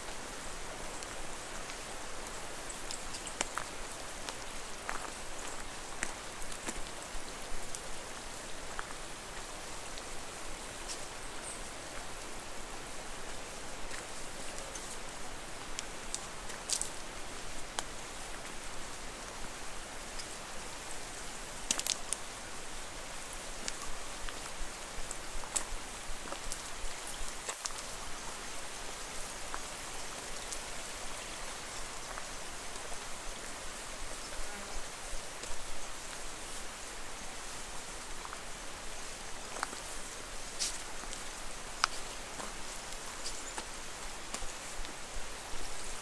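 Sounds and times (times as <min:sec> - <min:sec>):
soft rain-like hiss: 0:00.0 - 0:46.0
light ticks: 0:17.7 - 0:17.9, 0:21.7 - 0:22.2, 0:40.6 - 0:42.1.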